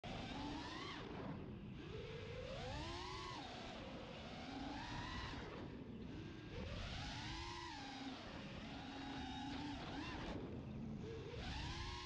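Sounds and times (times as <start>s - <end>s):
quadcopter motors whining: 0.1s - 12.0s.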